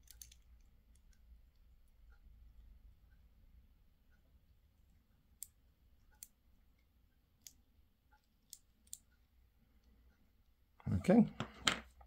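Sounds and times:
padlock metal parts clicking: 0.0s - 1.1s.

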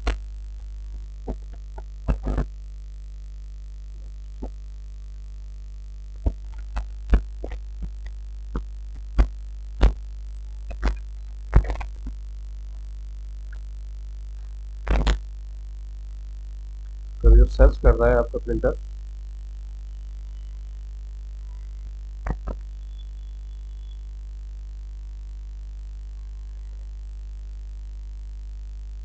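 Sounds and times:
low electrical hum: 0.0s - 29.0s.

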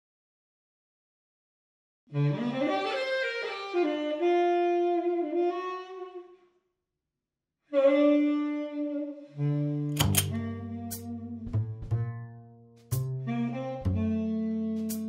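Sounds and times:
saxophone playing jazz notes: 2.6s - 6.3s, 7.7s - 11.5s, 13.0s - 15.0s
low bass line: 10.0s - 15.0s.

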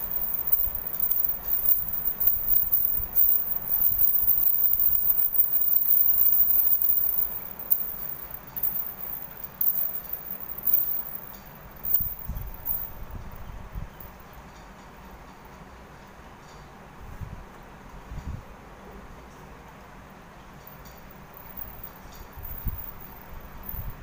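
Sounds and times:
knocks and rubbing from handling: 0.0s - 12.9s
anklet bells jingling: 0.0s - 13.0s, 21.4s - 24.0s.

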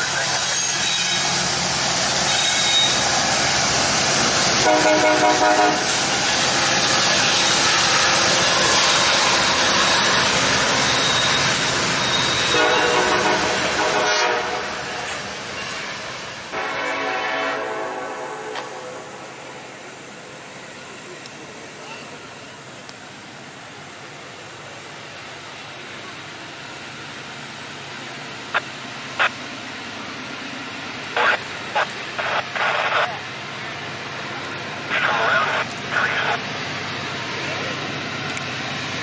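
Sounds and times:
freight train rumbling on rails: 0.0s - 39.0s
locomotive air horn: 2.3s - 3.0s, 4.6s - 6.0s, 12.2s - 15.1s, 16.5s - 19.4s.

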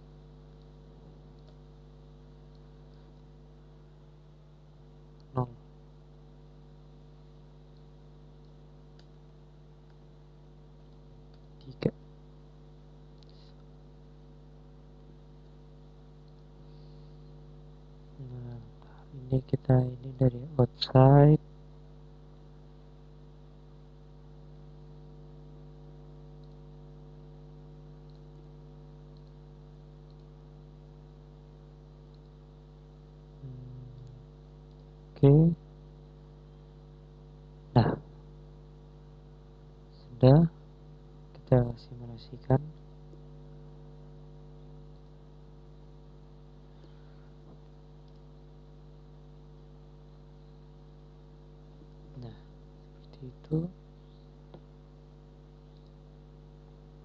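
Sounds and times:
electrical mains hum: 0.0s - 57.0s
computer mouse clicks: 1.4s - 1.6s, 16.2s - 16.5s, 26.4s - 26.6s, 28.0s - 28.3s, 29.1s - 29.4s, 30.0s - 30.4s, 32.1s - 32.4s, 34.0s - 34.9s, 48.0s - 48.3s, 55.7s - 56.0s.

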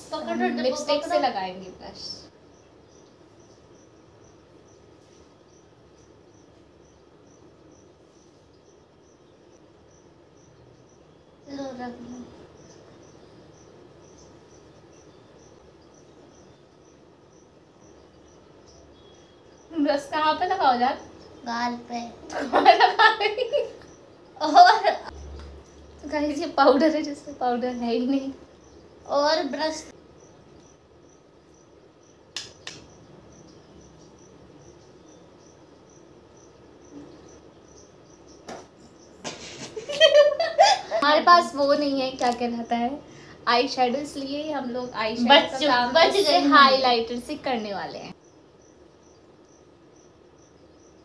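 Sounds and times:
cricket chirping: 0.0s - 51.0s
low room hiss: 0.0s - 51.0s
sharp clicks: 32.3s - 33.0s, 42.2s - 42.5s.

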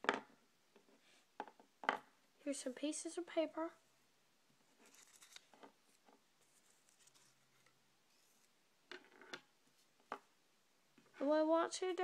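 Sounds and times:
paper rustling: 4.7s - 8.6s.

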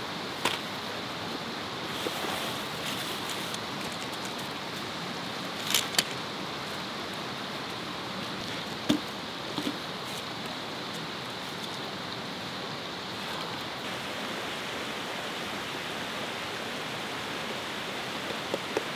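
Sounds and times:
rushing creek and waterfall: 0.0s - 18.9s
camping gear clicks and knocks: 0.4s - 0.7s, 2.8s - 4.9s, 5.5s - 6.3s, 8.4s - 11.9s.

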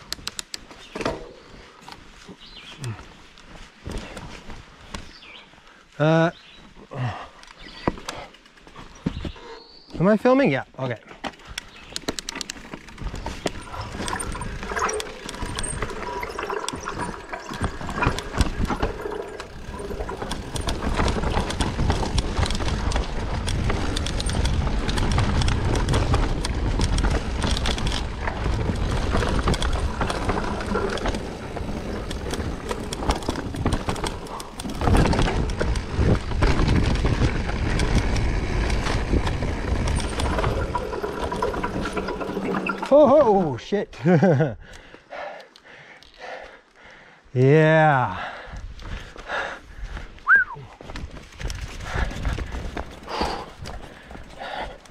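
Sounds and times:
bike rattling and clicking: 0.0s - 2.2s, 7.4s - 9.3s, 10.4s - 44.9s, 50.8s - 54.9s
bike tyres rumbling over dirt: 11.0s - 44.5s, 50.8s - 54.9s.

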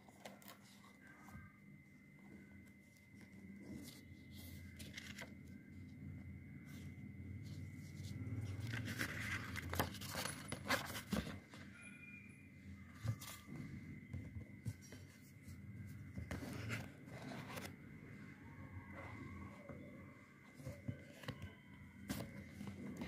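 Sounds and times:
faint high tone: 0.3s - 4.8s, 10.8s - 15.2s, 18.0s - 23.0s
cardboard scraping and rustling: 7.5s - 11.7s, 12.9s - 17.8s.

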